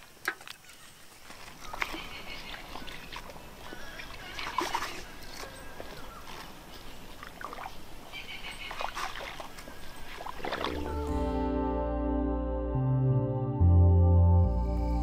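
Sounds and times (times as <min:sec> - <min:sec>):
feet wading through water: 0:00.0 - 0:11.3.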